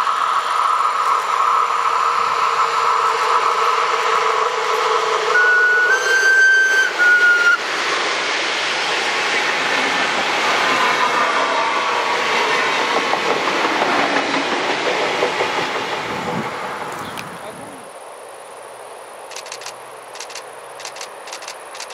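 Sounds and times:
train coaches rolling on rails: 0:00.0 - 0:17.9, 0:19.2 - 0:21.9
electric locomotive whine: 0:00.0 - 0:21.9
train horn: 0:00.8 - 0:07.6.

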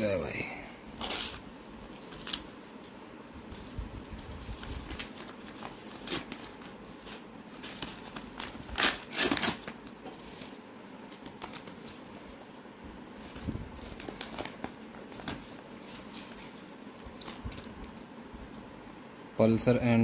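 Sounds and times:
paper envelope being torn open: 0:07.6 - 0:09.9.

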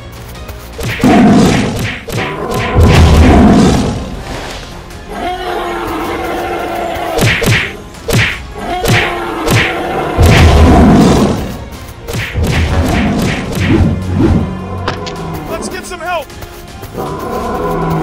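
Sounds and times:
cartoon thumps and whacks: 0:00.8 - 0:03.8, 0:07.2 - 0:11.2, 0:12.1 - 0:14.0.

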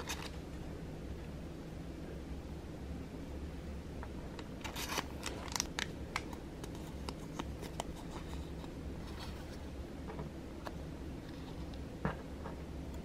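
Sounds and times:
low steady hum: 0:00.0 - 0:13.0
cellophane crackling and rustling: 0:04.6 - 0:09.7.

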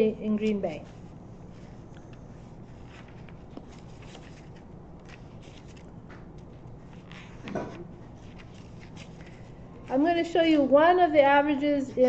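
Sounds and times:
person's voice: 0:00.0 - 0:00.9, 0:09.9 - 0:12.0.

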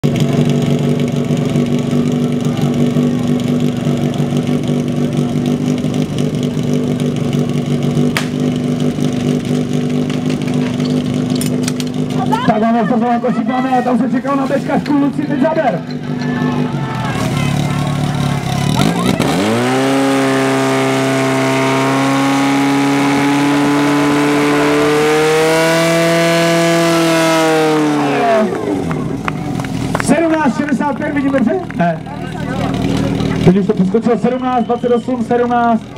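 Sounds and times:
pump engine at full throttle: 0:00.0 - 0:16.0, 0:17.0 - 0:35.9
sharp crack: 0:08.1 - 0:08.6.

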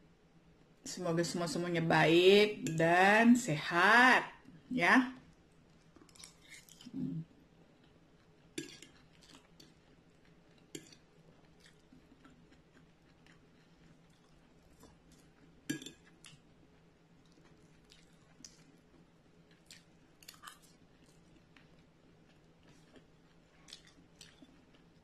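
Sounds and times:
soft chewing: 0:05.2 - 0:25.0
metal fork clinking on ceramic plate: 0:15.7 - 0:16.0.

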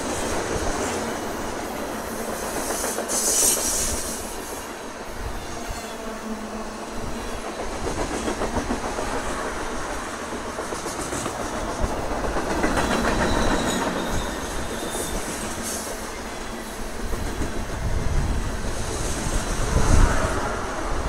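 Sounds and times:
freight train rumbling past: 0:00.0 - 0:21.0
clickety-clack of wheel clicks: 0:10.3 - 0:14.0.

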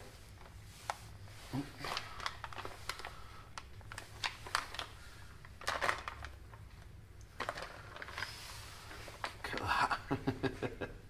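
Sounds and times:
foil pouch crinkling: 0:01.5 - 0:09.6.

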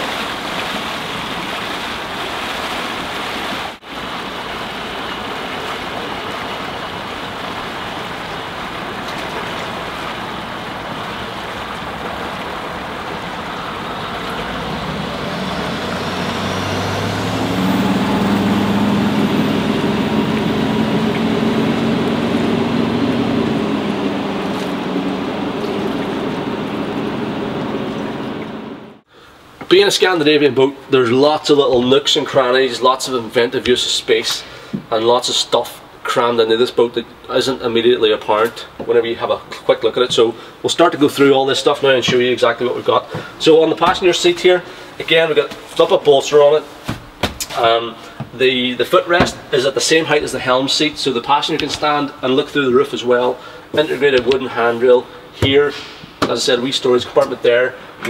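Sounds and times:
rush of water and wind: 0:00.0 - 0:58.0
boat diesel engine running: 0:03.9 - 0:29.0.

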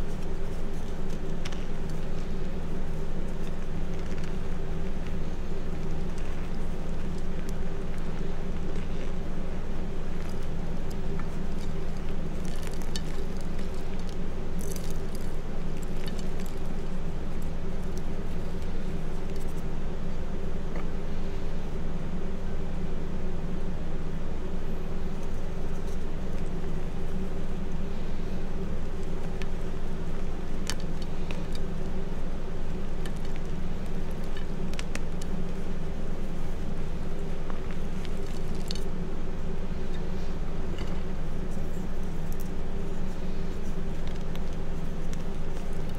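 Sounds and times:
chalk crumbling between fingers: 0:00.0 - 0:19.7, 0:39.6 - 0:45.9
low background hum: 0:00.0 - 0:45.9.

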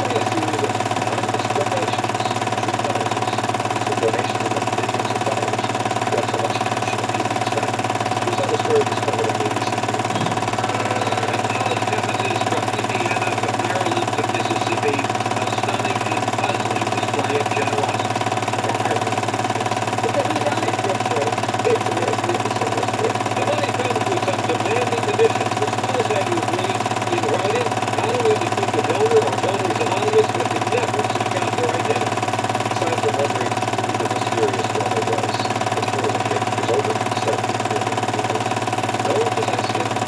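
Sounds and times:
faint warbling sounds: 0:00.0 - 0:32.0
motor-like hum: 0:00.0 - 0:40.0.

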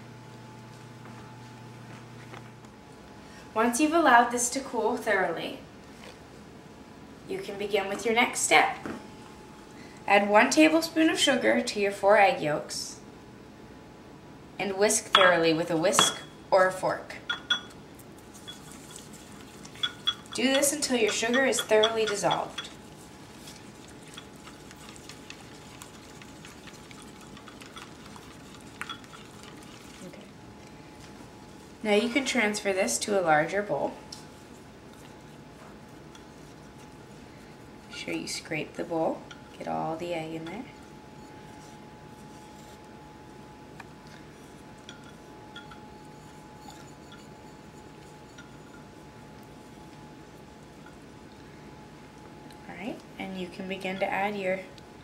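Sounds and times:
thin steady whine: 0:00.0 - 0:55.0
whisk ticking against bowl: 0:17.3 - 0:30.0, 0:34.9 - 0:37.2, 0:39.0 - 0:43.1, 0:44.0 - 0:51.4, 0:53.5 - 0:54.4.

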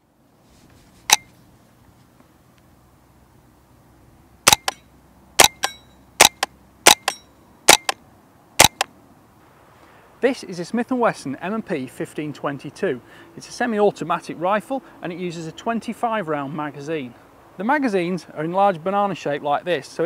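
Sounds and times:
suppressed rifle shots: 0:04.5 - 0:04.8, 0:05.4 - 0:08.0, 0:08.6 - 0:08.9.

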